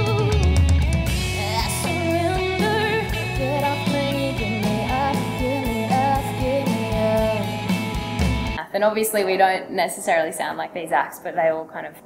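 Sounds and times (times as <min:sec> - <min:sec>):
woman singing: 0:00.0 - 0:00.6, 0:01.3 - 0:07.6
rock band playing: 0:00.0 - 0:08.6.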